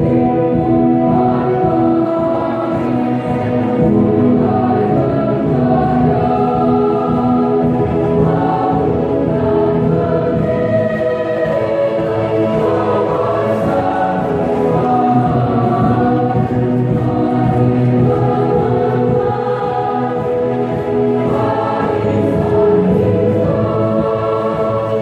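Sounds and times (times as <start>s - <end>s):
choir singing: 0.0s - 25.0s.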